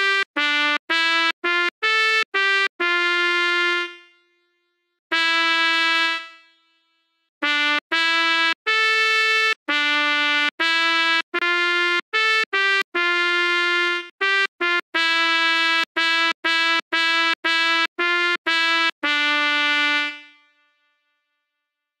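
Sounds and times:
sampled trumpet notes: 5.1 - 6.5, 7.4 - 20.7.

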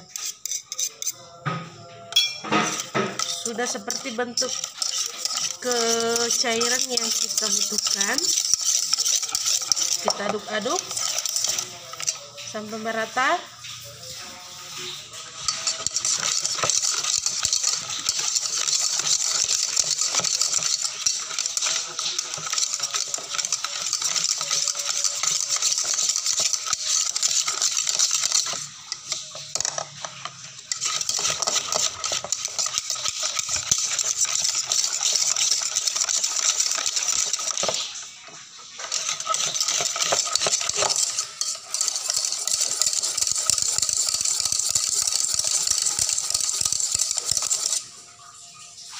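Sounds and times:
whisk beating batter in a bowl: 0.0 - 1.6, 2.5 - 48.0.

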